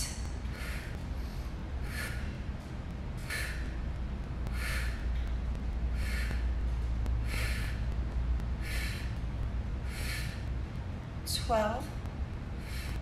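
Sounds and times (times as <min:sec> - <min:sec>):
steady low hum: 0:00.0 - 0:13.0
woman breathing sharply: 0:00.5 - 0:02.5, 0:03.2 - 0:03.8, 0:04.5 - 0:05.1, 0:05.9 - 0:06.6, 0:07.2 - 0:07.9, 0:08.6 - 0:09.2, 0:09.8 - 0:10.5, 0:12.6 - 0:13.0.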